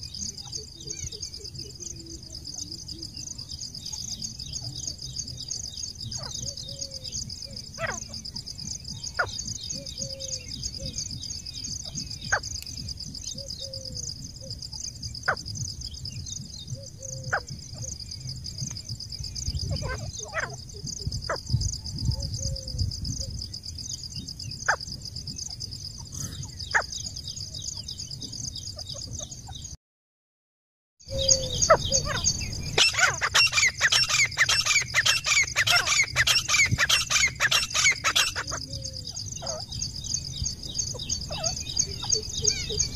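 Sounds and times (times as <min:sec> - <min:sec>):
high pulsing insect trill: 0:00.0 - 0:29.7, 0:31.1 - 0:42.9
loud rapid francolin calls: 0:31.1 - 0:38.6.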